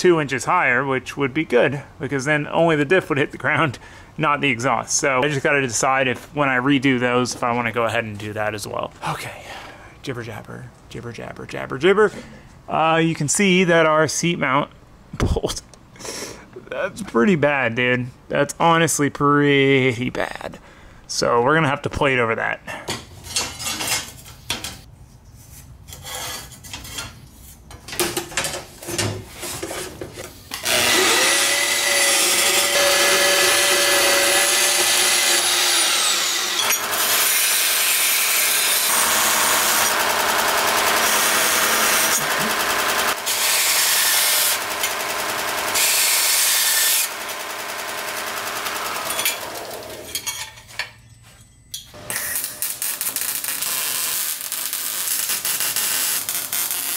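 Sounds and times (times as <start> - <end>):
band saw whining through steel: 30.5 - 50.2
belt grinder grinding: 30.5 - 50.3, 52.0 - 56.9.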